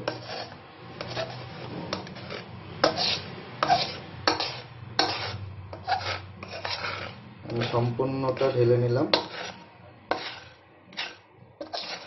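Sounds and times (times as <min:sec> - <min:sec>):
utensil scraping and knocking pan: 0:00.0 - 0:12.0.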